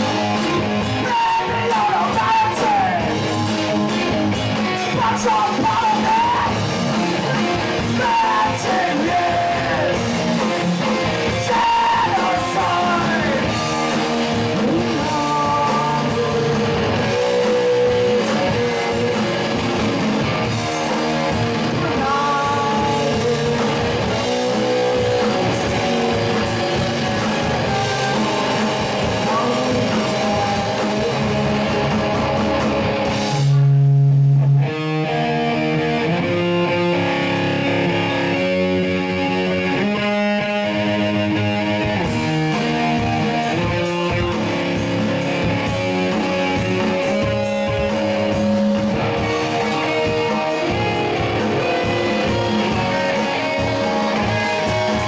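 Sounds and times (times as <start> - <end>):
person singing: 0.0 - 3.2, 4.6 - 6.7, 7.3 - 10.2, 11.2 - 32.2
live rock band playing: 0.0 - 55.0.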